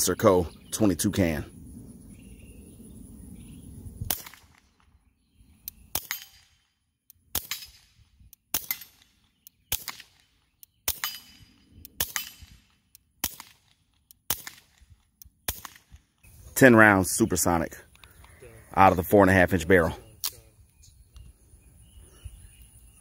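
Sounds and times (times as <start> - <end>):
suppressed pistol shots: 4.1 - 5.0, 5.6 - 6.7, 7.3 - 16.0
faint ticks: 17.9 - 18.4.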